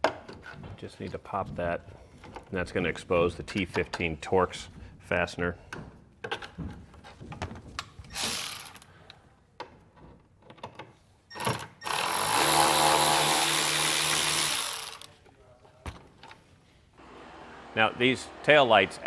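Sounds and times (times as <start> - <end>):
cordless ratchet running: 11.8 - 15.1.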